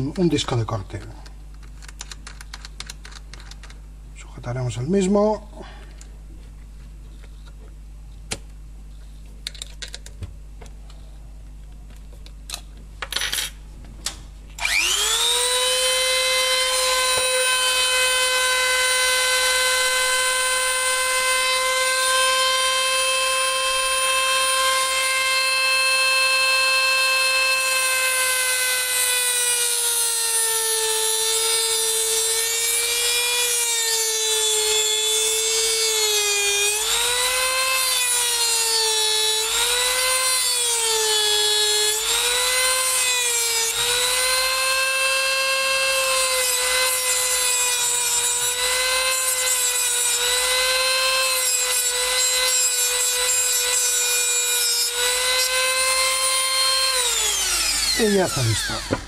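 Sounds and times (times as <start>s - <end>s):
rotary tool cutting metal screw: 14.6s - 59.0s.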